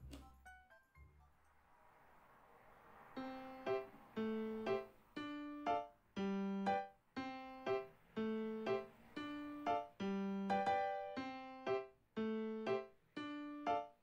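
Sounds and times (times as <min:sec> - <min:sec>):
soft rising hiss: 0:01.0 - 0:13.9
simple keyboard tune: 0:03.2 - 0:14.0.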